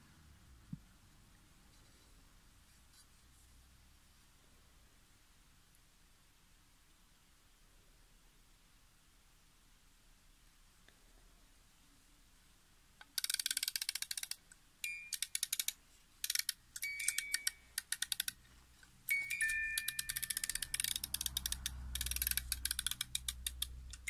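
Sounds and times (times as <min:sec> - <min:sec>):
music box ratchet clicking: 0:13.0 - 0:18.4, 0:19.1 - 0:24.0
music box comb notes ringing: 0:14.8 - 0:15.7, 0:16.3 - 0:18.4, 0:19.1 - 0:24.0.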